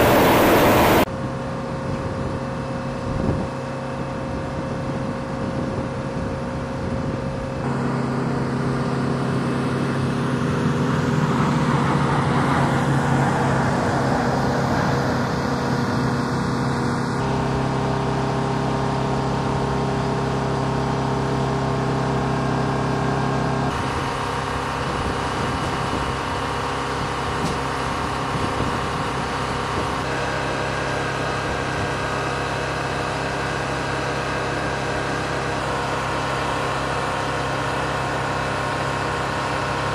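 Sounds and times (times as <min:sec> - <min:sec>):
aircraft rushing past low: 0:00.0 - 0:01.1, 0:07.6 - 0:18.3
turboprop aircraft engines droning: 0:00.0 - 0:39.9.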